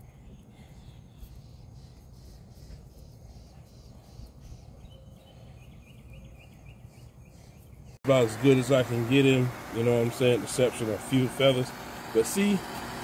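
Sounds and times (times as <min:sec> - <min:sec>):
small bird chirping: 0:00.0 - 0:08.0.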